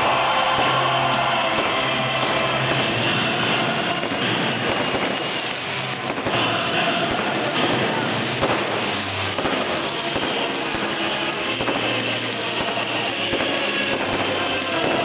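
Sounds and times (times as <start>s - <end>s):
fireworks bursting and crackling: 0.0s - 15.0s
sharp firework pops: 4.1s - 15.0s.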